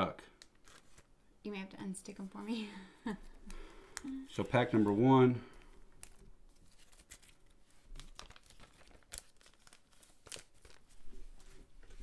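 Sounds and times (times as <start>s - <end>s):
foil wrapper crinkling and tearing: 5.6s - 11.0s.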